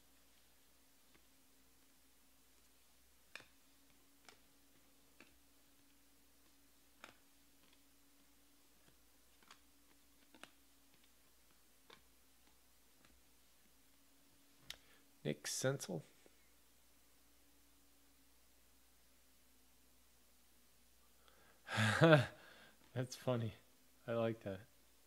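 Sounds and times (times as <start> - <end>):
low steady hum: 0.0 - 25.0
trading cards clicking: 2.6 - 13.2.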